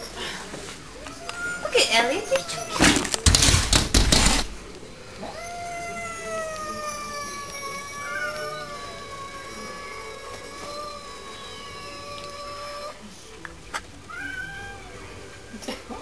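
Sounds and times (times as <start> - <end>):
harsh noisy bursts: 3.2 - 4.7
cat yowling: 5.3 - 13.0, 14.1 - 15.0.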